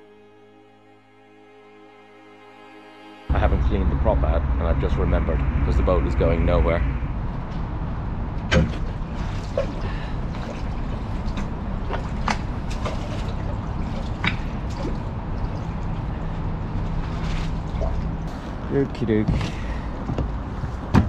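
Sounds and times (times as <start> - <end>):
low steady rumble: 3.2 - 21.0
water sloshing and dripping: 8.4 - 18.4.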